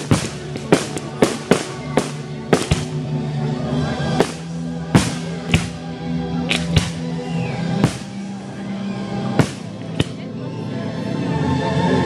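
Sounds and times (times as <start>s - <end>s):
firework shells bursting: 0.0s - 3.0s, 4.2s - 5.8s, 7.8s - 8.3s, 9.4s - 10.0s
background music: 0.0s - 12.0s.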